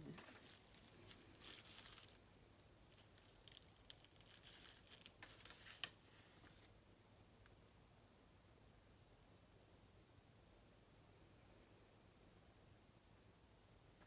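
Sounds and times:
packaging rustling and crinkling: 0.0 - 6.4.

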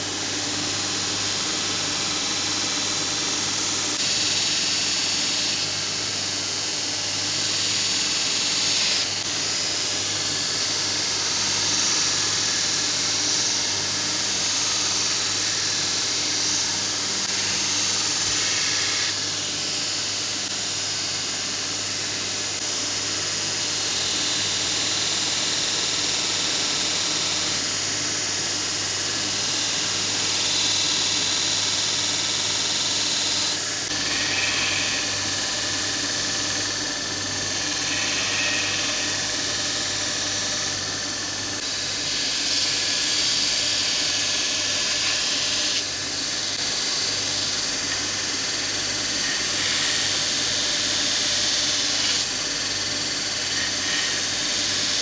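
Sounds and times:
belt grinder motor hum: 37.4 - 40.5, 46.8 - 55.0.

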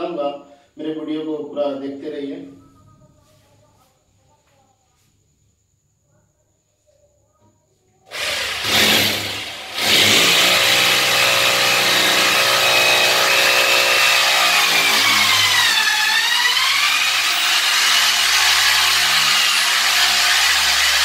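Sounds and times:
hammer drill boring into wall: 8.1 - 21.0.

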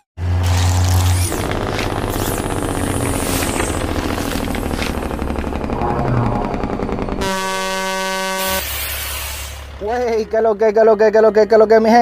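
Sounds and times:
stuttering electronic rattle: 0.4 - 10.8
deep bass rumble: 3.7 - 8.4
truck air horn blast: 7.2 - 8.9.

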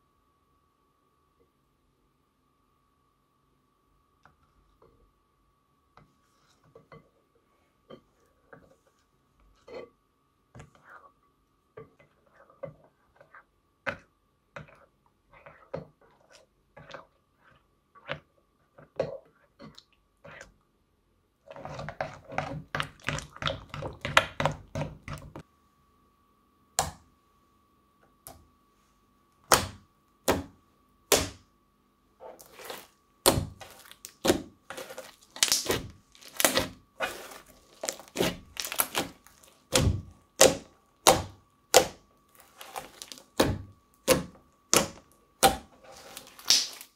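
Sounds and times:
crunchy slime clicking and crackling: 32.4 - 46.9.

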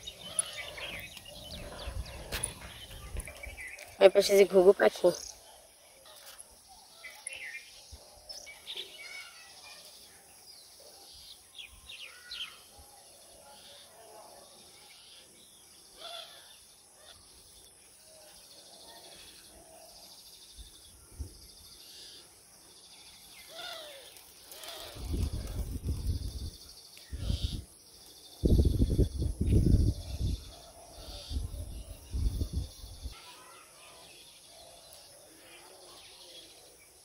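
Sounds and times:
small birds chirping: 0.0 - 37.0
insects droning: 14.9 - 37.0.

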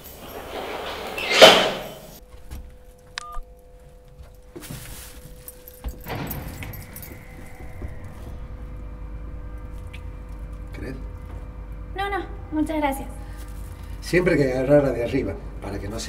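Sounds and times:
metal lift door clattering shut: 0.0 - 2.2, 5.8 - 9.6
lift running hum: 0.0 - 16.0.

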